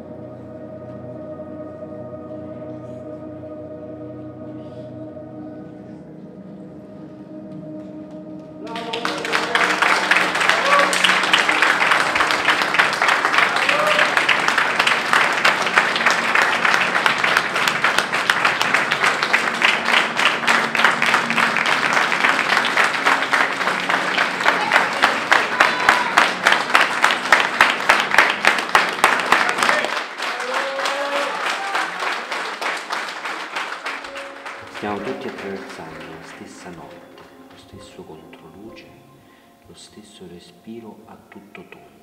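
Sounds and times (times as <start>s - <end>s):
crowd applauding: 8.6s - 38.7s.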